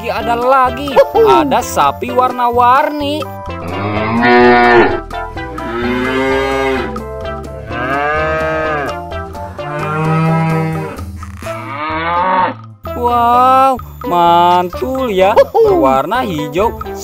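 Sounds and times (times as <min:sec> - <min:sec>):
background music: 0:00.0 - 0:17.0
cows mooing: 0:03.6 - 0:12.7.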